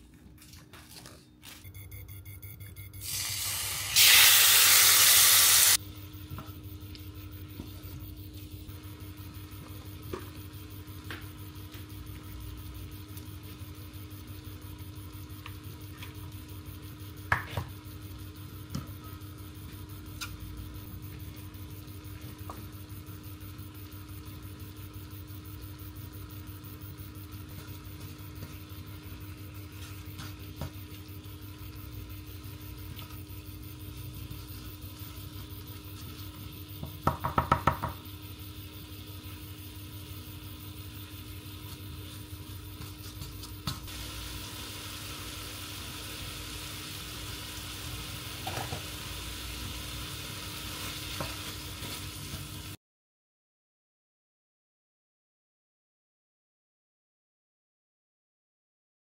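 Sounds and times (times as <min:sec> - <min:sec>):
food sizzling in a pan: 0:03.0 - 0:05.8, 0:27.7 - 0:52.8.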